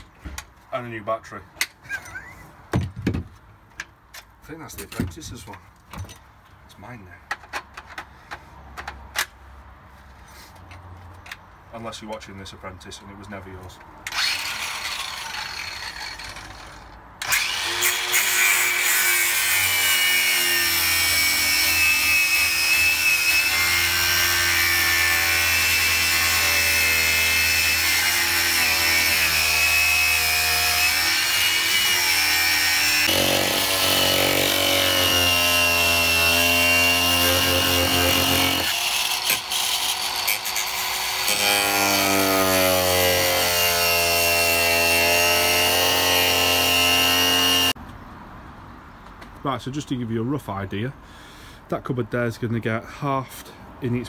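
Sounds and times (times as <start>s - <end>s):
angle grinder cutting board: 14.1s - 47.8s.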